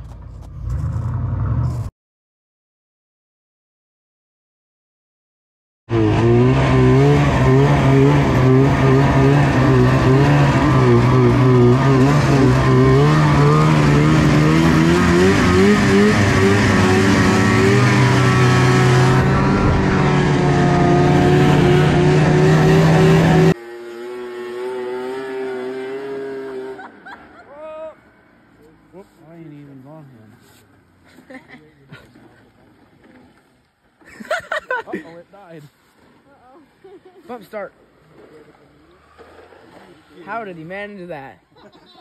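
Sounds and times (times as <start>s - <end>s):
snowmobile engine running hard: 5.9s - 27.9s
distant snowmobile engine: 5.9s - 42.0s.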